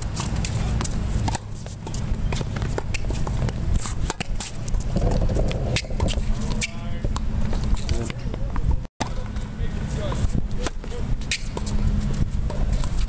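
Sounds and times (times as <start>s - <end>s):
racket striking tennis ball: 0.0s - 4.8s
steady low rumble: 0.0s - 12.8s.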